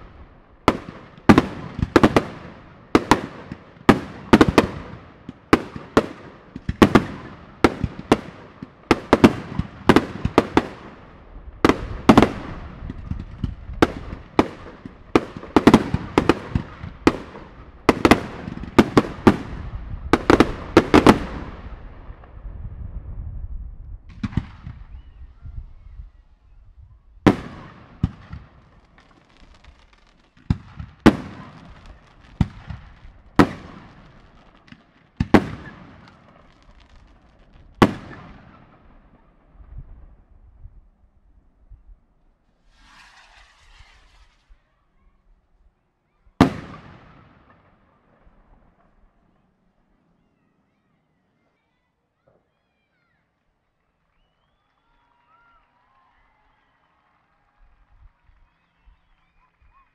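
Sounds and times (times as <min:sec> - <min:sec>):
fireworks bangs: 0:00.0 - 0:22.6, 0:24.0 - 0:26.2, 0:27.2 - 0:40.3, 0:42.6 - 0:44.8, 0:46.4 - 0:49.5.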